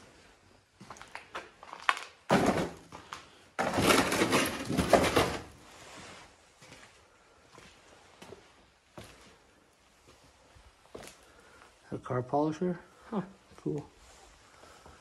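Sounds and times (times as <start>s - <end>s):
cardboard crinkling and scraping: 3.6s - 6.1s.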